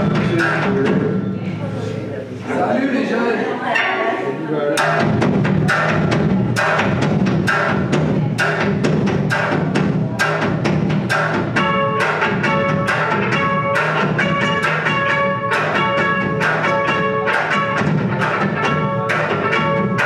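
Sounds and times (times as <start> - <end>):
electric guitar and bass: 0.0 - 1.9, 4.8 - 20.0
live band music: 0.0 - 2.6, 3.7 - 20.0
sharp percussive hits: 4.8 - 20.0.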